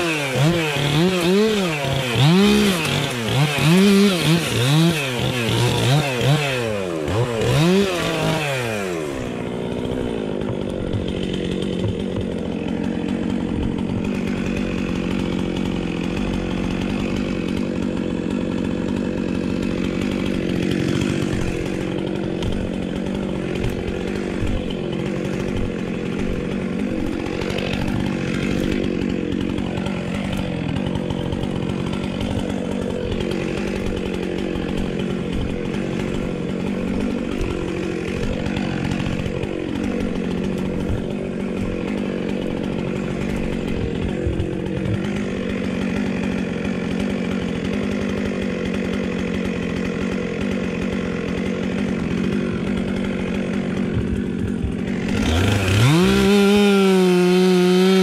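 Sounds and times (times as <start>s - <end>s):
chainsaw idling: 0.0s - 58.0s.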